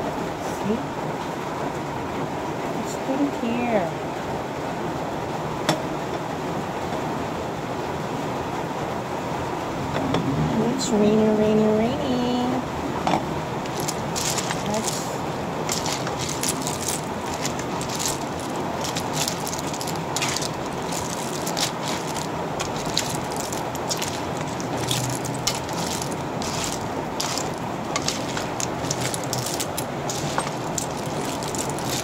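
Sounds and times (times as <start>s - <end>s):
heavy rain falling: 12.8s - 32.0s
food bubbling in a wok: 15.5s - 30.8s.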